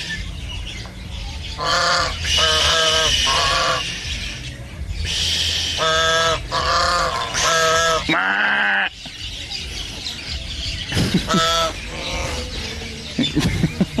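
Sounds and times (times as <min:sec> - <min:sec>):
waterfowl calling: 0:01.6 - 0:04.0, 0:05.0 - 0:09.0, 0:10.9 - 0:12.7.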